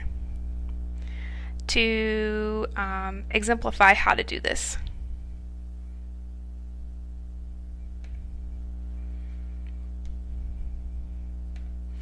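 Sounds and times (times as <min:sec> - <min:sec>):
electrical mains hum: 0:00.0 - 0:12.0
faint clicks: 0:08.0 - 0:08.3, 0:09.6 - 0:10.2, 0:11.5 - 0:11.8.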